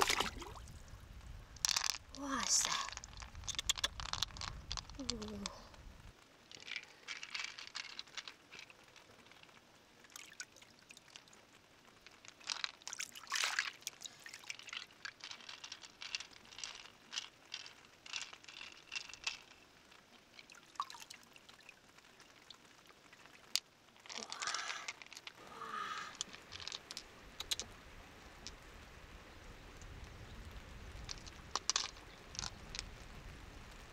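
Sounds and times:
small clicks and splashes: 0.0 - 0.8, 1.6 - 27.7, 31.0 - 33.1
water pouring and trickling: 0.0 - 0.9, 1.6 - 27.6.

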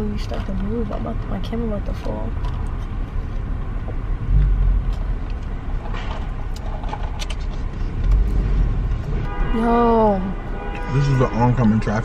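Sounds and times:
road and engine rumble: 0.0 - 12.0
faint rustles and clicks: 4.8 - 8.2.

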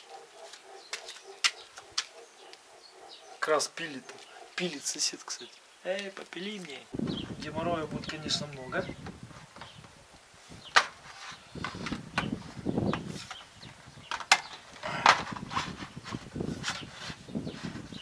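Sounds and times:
scraping and rustling: 10.7 - 18.0.

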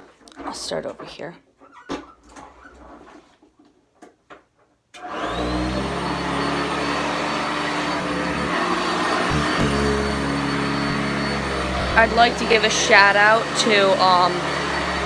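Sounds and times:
vacuum cleaner motor whining: 5.0 - 15.0.

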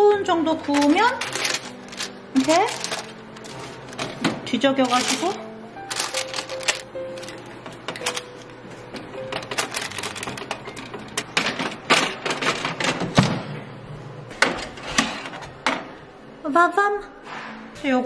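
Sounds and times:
oats and nuts rattling on tray: 0.8 - 4.0, 4.8 - 7.3.

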